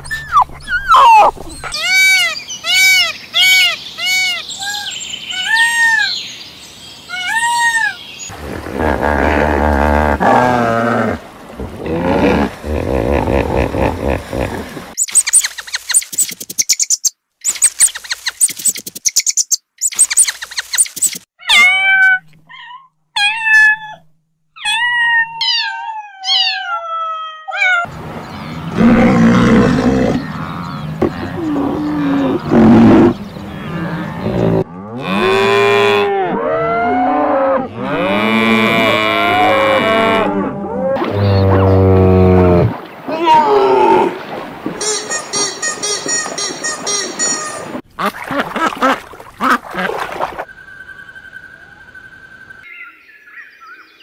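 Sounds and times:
cattle mooing: 0:08.3 - 0:14.2, 0:28.5 - 0:42.7.

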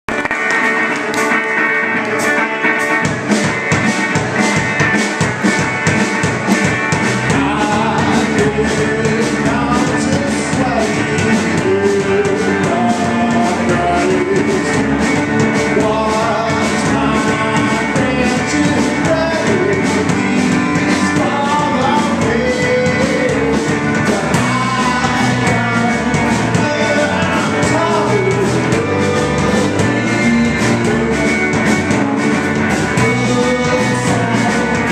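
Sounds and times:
drums hitting: 0:00.1 - 0:34.9
rock band playing: 0:00.1 - 0:34.9.

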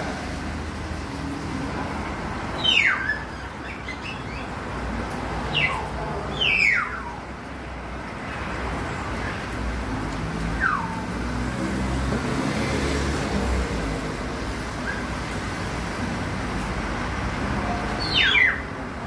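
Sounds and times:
sharp downward chirping calls: 0:02.6 - 0:04.5, 0:18.0 - 0:18.7.

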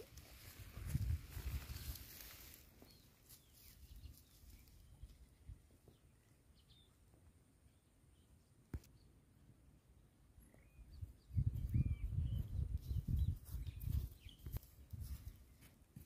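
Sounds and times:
footsteps rustling through grass: 0:00.0 - 0:05.0, 0:13.0 - 0:16.0.

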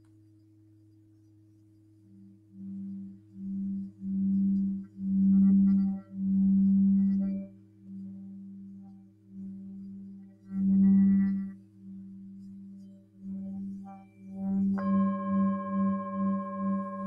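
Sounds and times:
singing bowl hum: 0:02.0 - 0:17.0
lower singing bowl ringing: 0:14.0 - 0:17.0.

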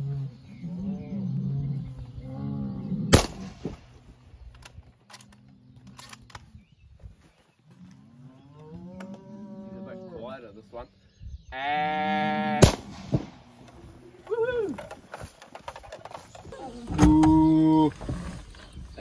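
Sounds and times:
rifle shot: 0:03.1 - 0:03.9, 0:12.6 - 0:13.4
cattle mooing: 0:11.6 - 0:12.6.

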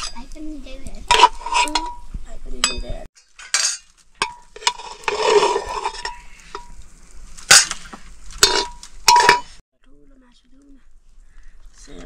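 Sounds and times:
metal utensil clinking on a pot: 0:01.1 - 0:02.0, 0:02.6 - 0:06.8, 0:08.4 - 0:09.6.

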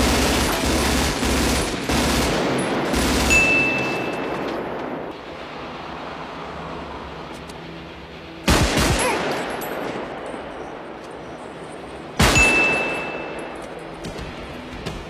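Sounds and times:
rifle gunfire burst: 0:00.0 - 0:03.7, 0:08.5 - 0:09.3.

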